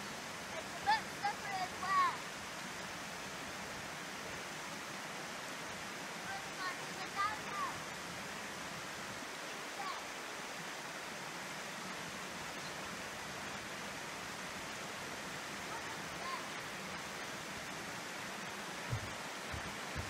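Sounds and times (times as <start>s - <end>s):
stream over small waterfall: 0.0s - 20.0s
soft low thumps: 18.8s - 20.0s.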